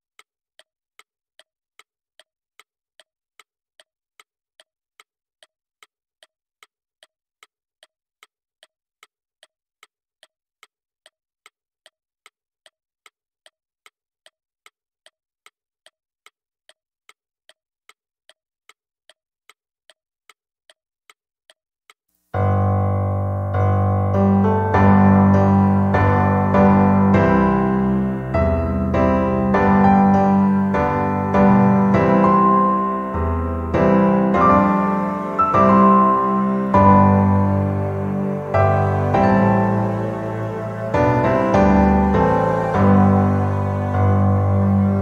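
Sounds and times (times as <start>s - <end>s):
clock ticking: 0.0s - 22.0s.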